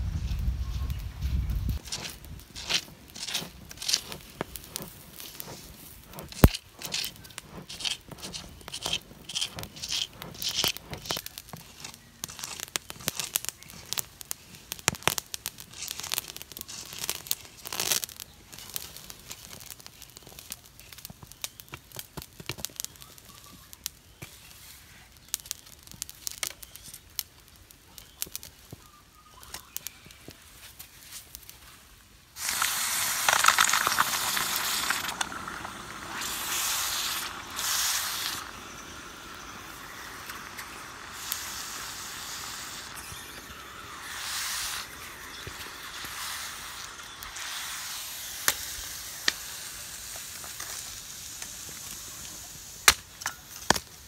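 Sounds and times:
charcoal crackling and scraping: 0.0s - 54.0s
hot metal quenched in water: 1.8s - 18.8s, 32.4s - 53.8s.

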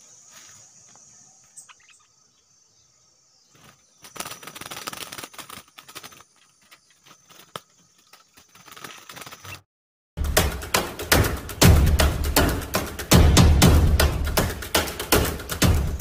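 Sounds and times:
bird wings flapping in cage: 3.5s - 9.6s.

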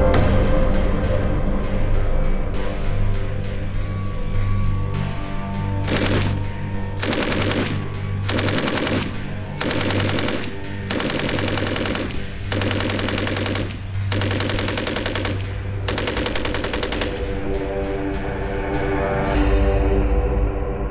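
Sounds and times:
background music: 0.0s - 20.9s
machine gun bursts: 5.9s - 6.4s, 7.0s - 17.3s.

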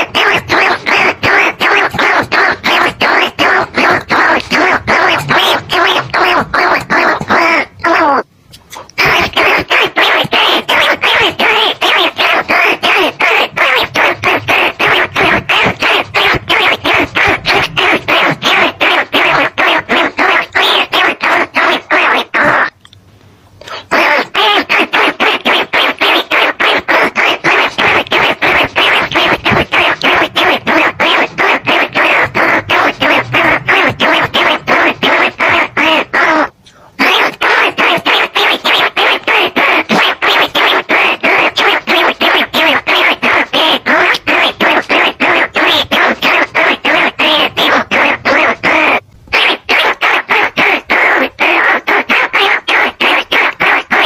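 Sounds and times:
rat squeaks: 0.0s - 22.8s.

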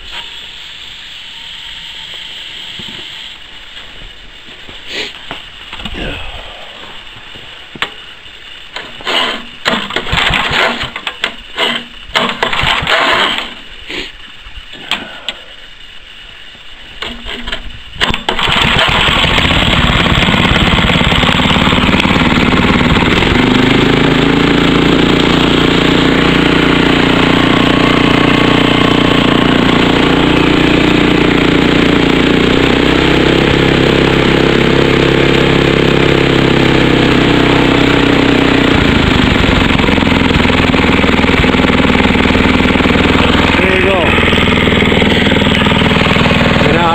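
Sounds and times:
small gasoline engine running: 7.8s - 14.1s, 17.0s - 46.9s
pull-start cord pulls: 8.8s - 13.6s, 17.0s - 22.1s.

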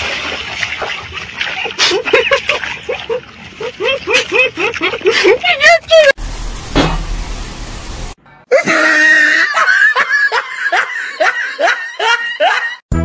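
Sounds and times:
person laughing high-pitched: 1.8s - 6.2s, 8.5s - 12.8s.

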